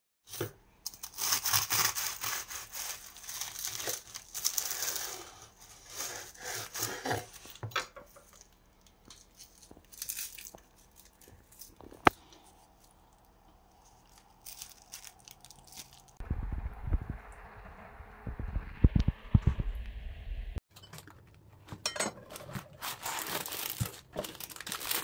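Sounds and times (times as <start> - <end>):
knife sawing crunchy pastry: 0.9 - 7.6.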